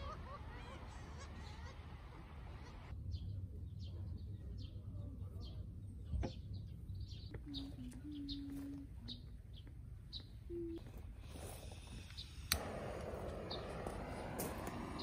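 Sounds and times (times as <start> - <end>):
small birds chirping: 0.0 - 15.0
low rumble: 12.6 - 15.0.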